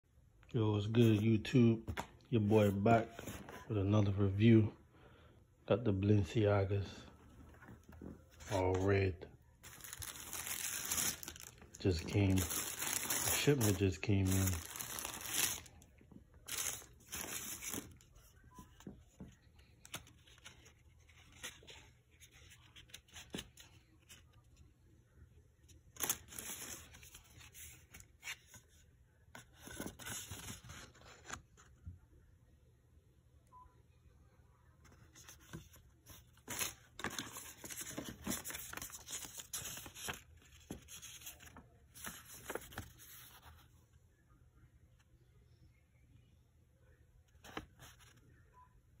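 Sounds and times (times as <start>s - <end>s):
tissue paper rustling: 9.6s - 15.8s, 16.4s - 18.3s, 35.2s - 43.7s.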